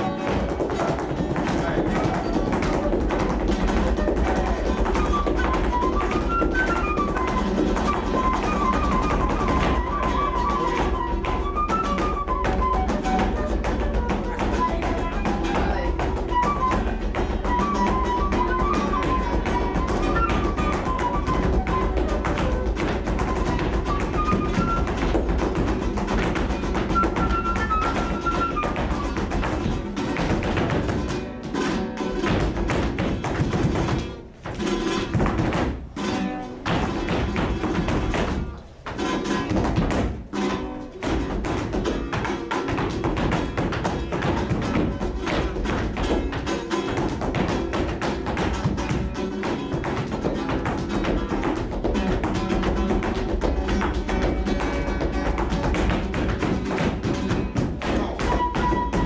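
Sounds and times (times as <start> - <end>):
flamenco guitar: 0.0 - 59.0
heel and toe dance strikes: 0.0 - 59.0.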